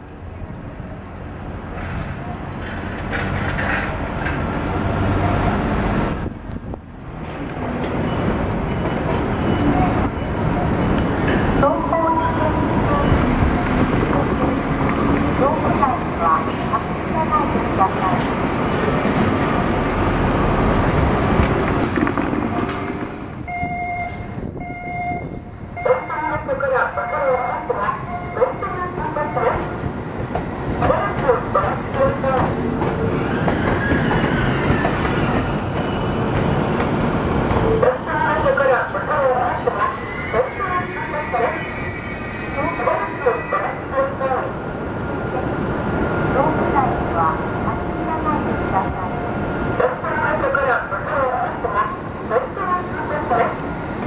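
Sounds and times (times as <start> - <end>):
level crossing warning beeps: 8.0 - 13.4, 23.5 - 29.6.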